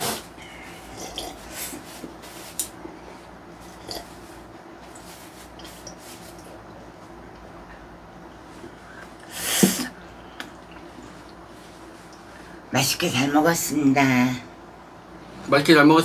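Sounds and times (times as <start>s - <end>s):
person gulping and swallowing: 0.8s - 1.7s, 3.7s - 4.2s.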